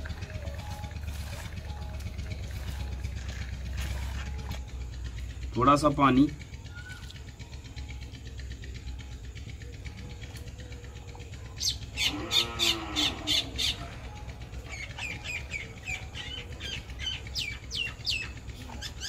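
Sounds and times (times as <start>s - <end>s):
birds squawking: 11.6s - 19.0s
low drawn-out animal call: 11.6s - 19.0s
high bird chirps: 14.6s - 19.0s.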